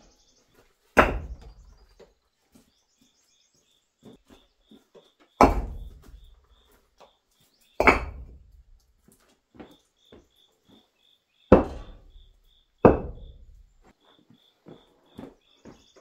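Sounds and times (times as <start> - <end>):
concrete blocks knocking together: 4.1 - 6.6, 7.8 - 8.8, 11.5 - 13.7.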